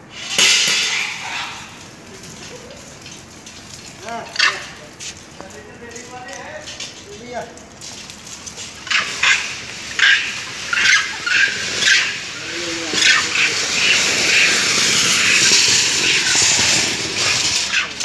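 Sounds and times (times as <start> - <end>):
loud hissing noise: 0.0 - 3.0, 8.7 - 18.0
monkeys shrieking: 0.1 - 2.9, 4.2 - 5.0, 8.6 - 18.0.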